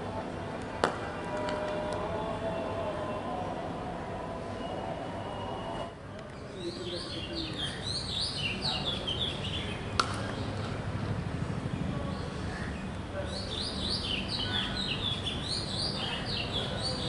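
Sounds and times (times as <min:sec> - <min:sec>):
cricket bat striking ball: 0:00.8 - 0:01.8, 0:10.0 - 0:10.4
birds chirping: 0:06.3 - 0:10.8, 0:12.0 - 0:17.0.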